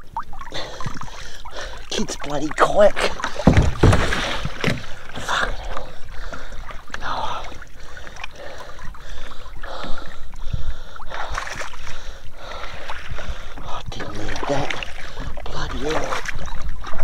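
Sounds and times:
water splashing and trickling: 0:00.0 - 0:17.0
dull knocks: 0:03.3 - 0:05.0.

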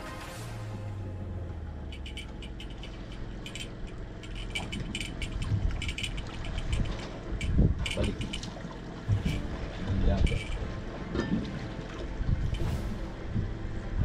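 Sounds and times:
low hum: 0:00.0 - 0:14.0
fishing reel clicking: 0:02.0 - 0:08.5
low thumps: 0:09.0 - 0:11.5.

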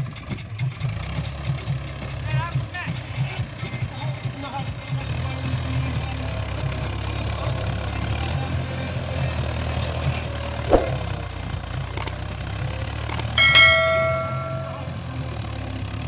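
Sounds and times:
bell chime sound effect: 0:13.4 - 0:15.1.

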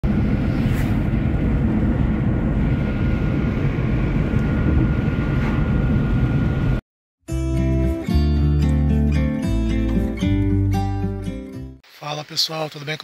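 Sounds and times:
car road and engine noise: 0:00.0 - 0:06.8.

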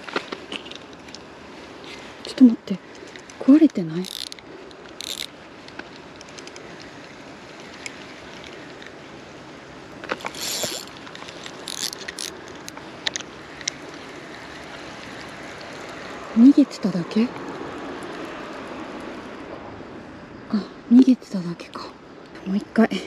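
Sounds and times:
steady outdoor hiss: 0:00.0 - 0:23.0
fishing tackle clicks: 0:02.9 - 0:07.1, 0:10.0 - 0:14.0.

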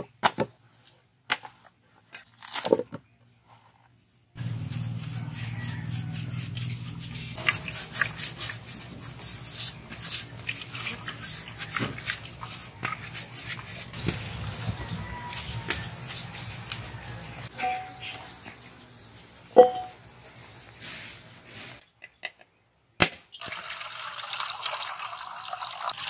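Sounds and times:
coconut fibre tearing: 0:02.1 - 0:02.8.

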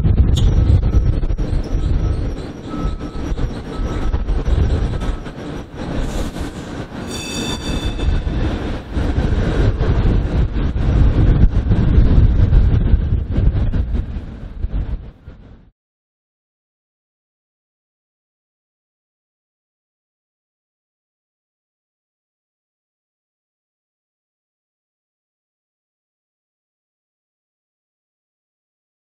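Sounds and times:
streetcar rumbling on rails: 0:00.0 - 0:15.7
high-pitched wheel squeal: 0:00.4 - 0:08.4.

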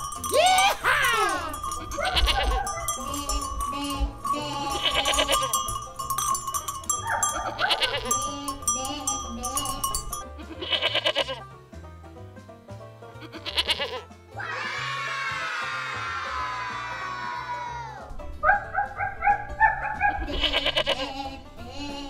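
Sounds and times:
background music: 0:00.0 - 0:22.0
goat bleating: 0:00.6 - 0:05.8, 0:07.0 - 0:11.4, 0:13.2 - 0:14.1, 0:20.1 - 0:22.0.

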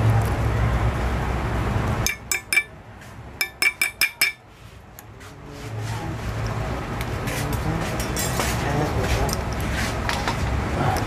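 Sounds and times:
steel chisel clinking on metal: 0:02.1 - 0:02.7, 0:03.4 - 0:04.4.

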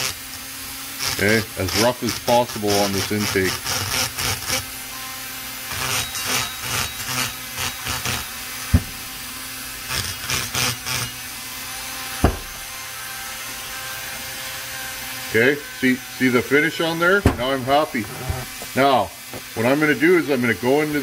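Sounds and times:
rotary tool grinding metal: 0:00.0 - 0:21.0
short thumps: 0:08.7 - 0:09.2, 0:12.2 - 0:12.8, 0:17.1 - 0:18.8.

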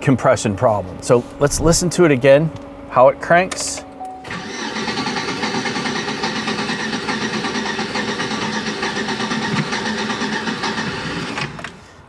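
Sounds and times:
engine cranking on starter: 0:04.3 - 0:11.9.

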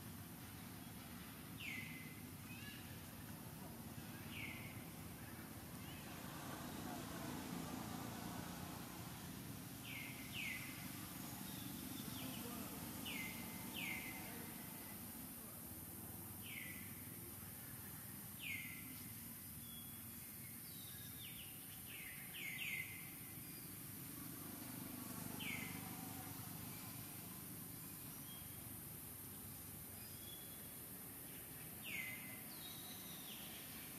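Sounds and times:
steady high hiss: 0:00.0 - 0:33.9
bird chirping: 0:09.8 - 0:15.0, 0:16.4 - 0:23.9, 0:25.4 - 0:27.0, 0:27.8 - 0:33.9.

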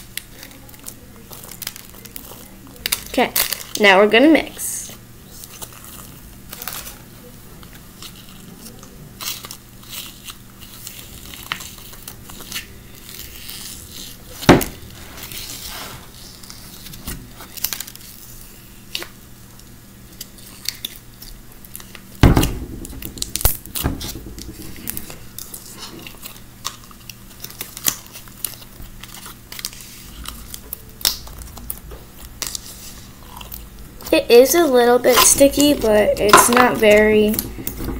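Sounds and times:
slime clicking and crackling: 0:00.0 - 0:03.8, 0:24.4 - 0:37.9
knocks on plastic tub: 0:22.2 - 0:25.4, 0:35.5 - 0:37.9.

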